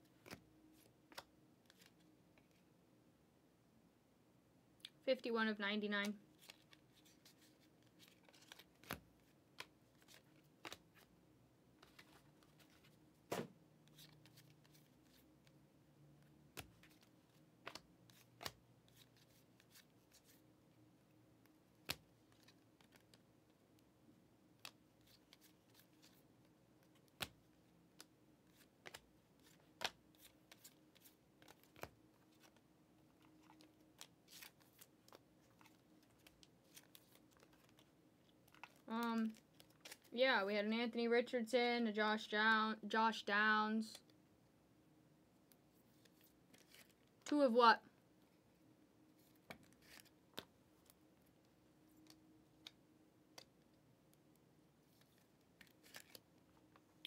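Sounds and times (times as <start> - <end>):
trading cards clicking and snapping: 8.0 - 11.1, 16.5 - 20.4, 26.8 - 32.6, 33.2 - 40.1, 55.1 - 56.2.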